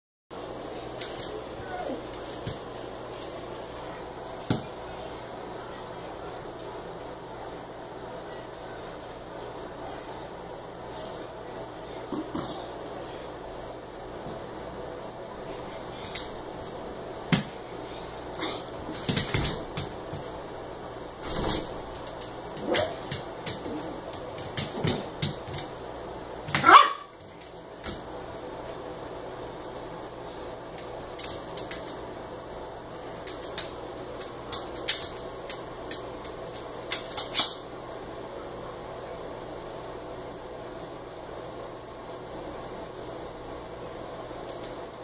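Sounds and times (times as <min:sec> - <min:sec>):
low room hum: 0:00.3 - 0:45.0
dogs scuffling: 0:18.6 - 0:20.6, 0:21.2 - 0:25.8
dogs thumping against glass door: 0:18.9 - 0:20.3, 0:21.2 - 0:25.7.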